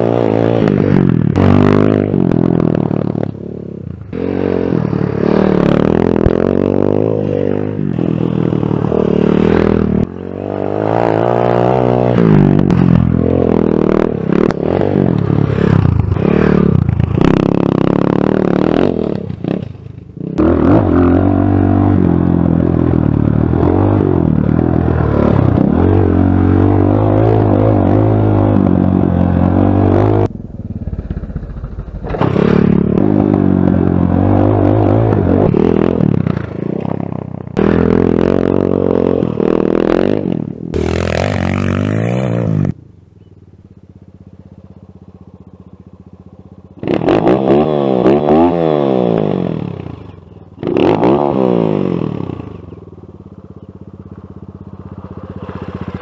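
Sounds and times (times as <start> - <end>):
motorbike engine revving: 0.0 - 42.8, 43.7 - 56.0.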